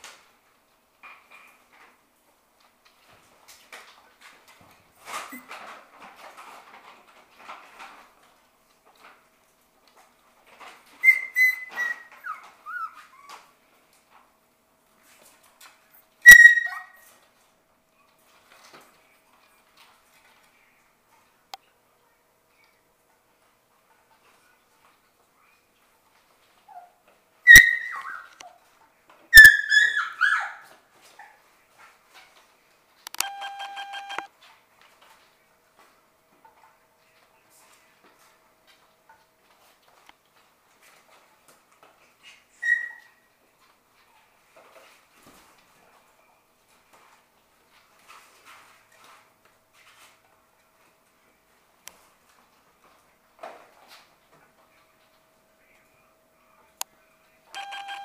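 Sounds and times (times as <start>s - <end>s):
puppy whimpering: 11.0s - 13.5s, 16.2s - 17.0s, 26.7s - 28.3s, 42.2s - 43.1s.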